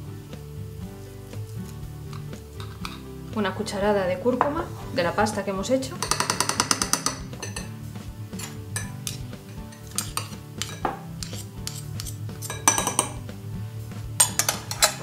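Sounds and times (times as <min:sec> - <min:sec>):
metal spoons clinking against glass: 0:06.0 - 0:07.7, 0:08.3 - 0:13.2, 0:14.2 - 0:15.0
spoon scraping paste off spoon: 0:08.4 - 0:12.8.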